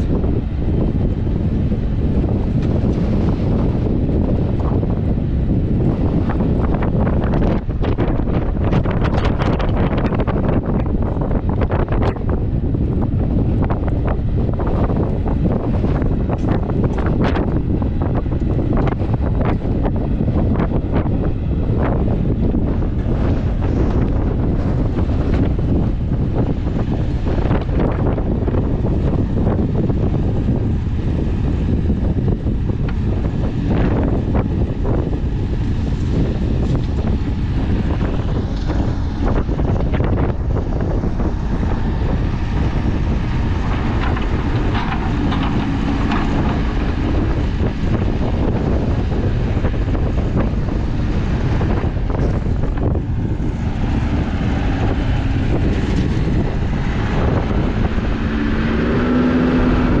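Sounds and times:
diesel engine under load: 0.0s - 60.0s
wind buffeting microphone: 0.0s - 60.0s
knocks and scrapes: 41.5s - 48.8s.

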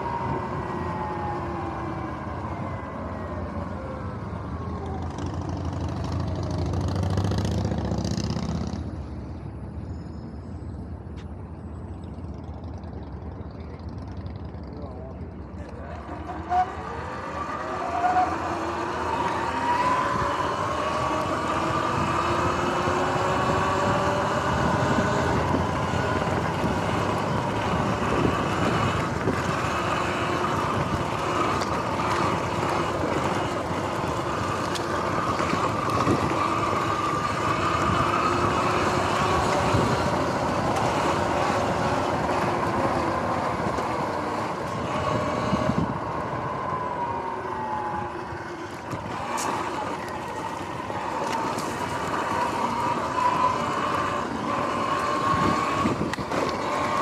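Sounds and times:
tyre noise: 15.6s - 57.0s
electric dirt bike motor whining: 16.0s - 57.0s
wind noise: 19.5s - 57.0s.

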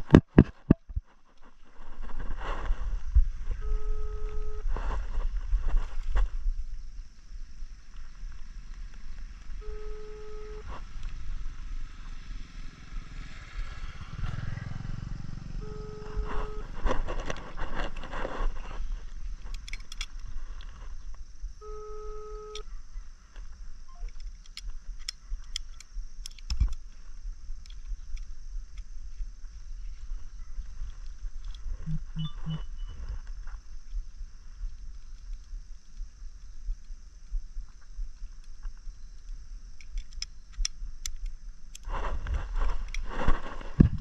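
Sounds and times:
short beep: 3.6s - 4.6s, 9.6s - 10.7s, 15.6s - 16.8s, 21.6s - 22.6s, 31.9s - 33.0s
handling noise: 15.6s - 22.7s
tool clicks and scrapes: 16.2s - 20.2s
wind on microphone: 41.9s - 44.0s.

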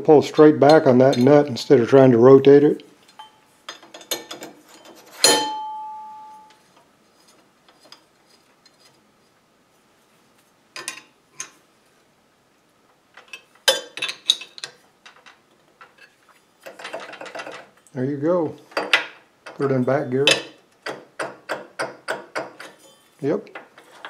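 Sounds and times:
metal clicks and clanks: 3.1s - 5.6s, 13.2s - 17.8s, 18.7s - 24.0s
metal ringing: 3.1s - 6.6s.

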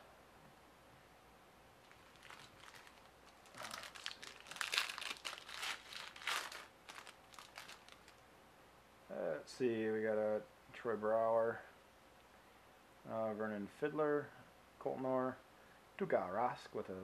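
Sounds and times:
foil pack tearing and crinkling: 1.9s - 8.2s.

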